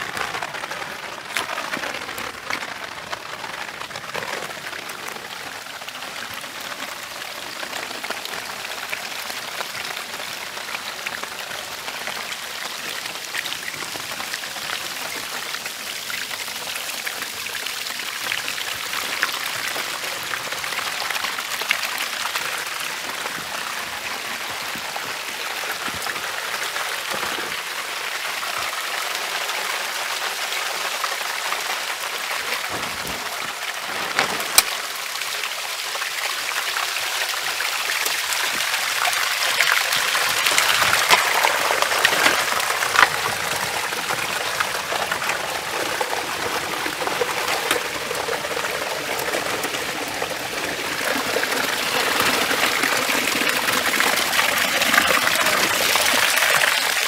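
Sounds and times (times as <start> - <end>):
rain drops pattering: 0.0 - 57.0.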